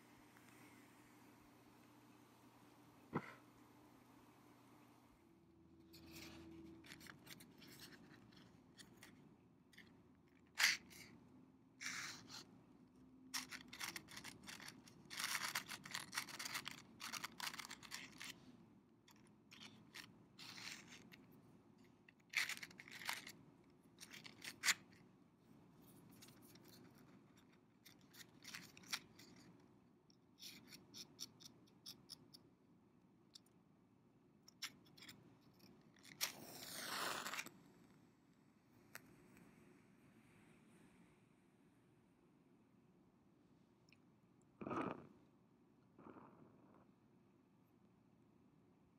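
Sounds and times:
matchbox scraping and rustling: 6.0s - 9.2s, 9.8s - 11.2s, 11.8s - 12.5s, 13.4s - 18.4s, 19.1s - 21.3s, 22.1s - 23.4s, 24.0s - 25.0s, 26.1s - 29.6s, 34.6s - 37.6s.

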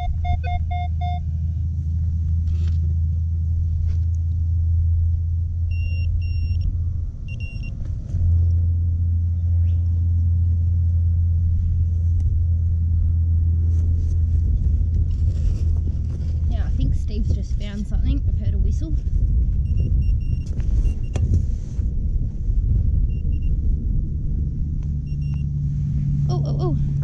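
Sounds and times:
metal detector beeps: 0.0s - 1.2s, 5.7s - 6.7s, 7.3s - 7.7s, 19.7s - 21.2s, 25.1s - 25.5s
steady low rumble: 0.0s - 27.0s.

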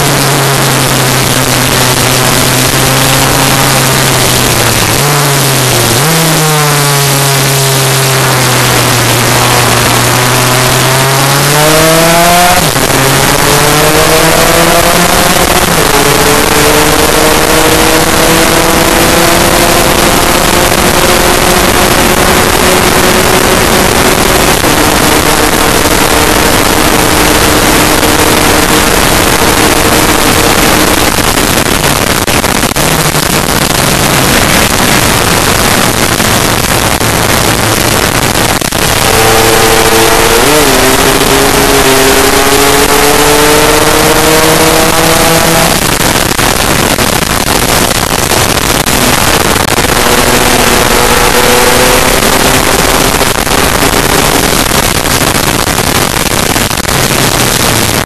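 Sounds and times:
scooter engine revving: 0.0s - 58.0s.

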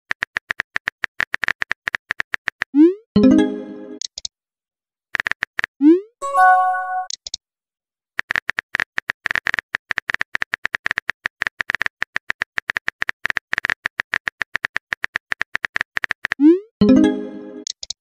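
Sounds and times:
phone message chime: 6.2s - 7.1s.

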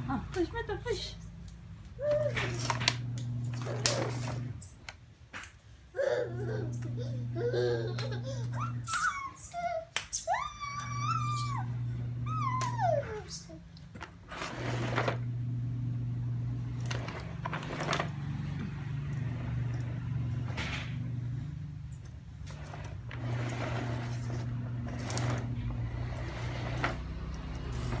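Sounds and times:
steady low hum: 5.9s - 9.0s, 11.0s - 28.0s
plastic toy walker rattling: 16.8s - 18.2s.

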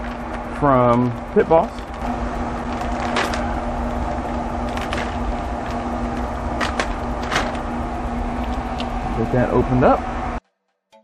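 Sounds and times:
pellet grill humming: 0.0s - 10.4s
plastic bag crinkling: 1.6s - 7.8s.

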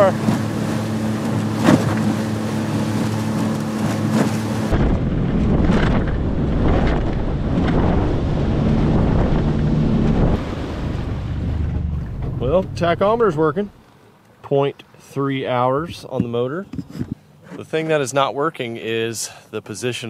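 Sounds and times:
outboard motor running: 0.0s - 13.8s
boat hull slapping water: 0.0s - 14.1s
wind on microphone: 0.2s - 13.8s, 15.9s - 17.2s.

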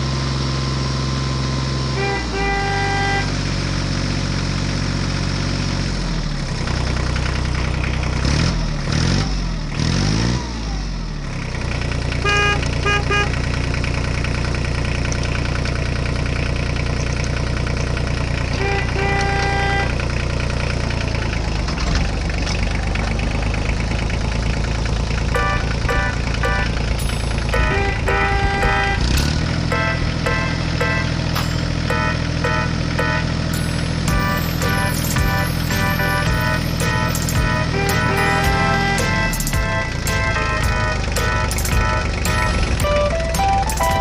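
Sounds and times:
electronic horn toots: 1.9s - 3.4s, 12.2s - 13.4s, 18.5s - 20.0s, 25.3s - 44.0s
electronic engine drone: 16.9s - 44.0s
wailing siren tones: 34.1s - 44.0s.

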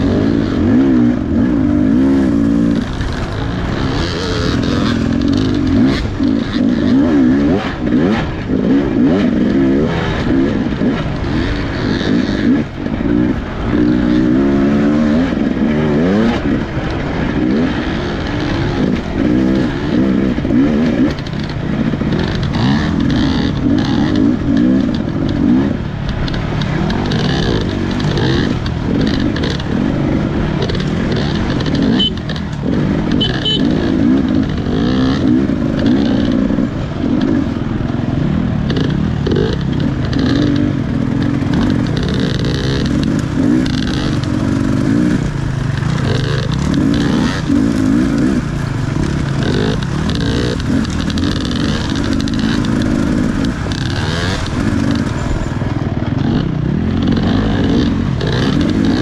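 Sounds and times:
dirt bike engine revving: 0.0s - 59.0s
bike clattering over rough ground: 21.0s - 33.1s, 33.9s - 59.0s.

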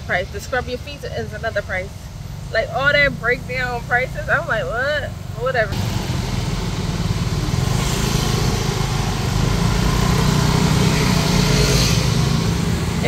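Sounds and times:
van running: 0.0s - 13.0s
motor scooters passing: 2.8s - 13.0s.

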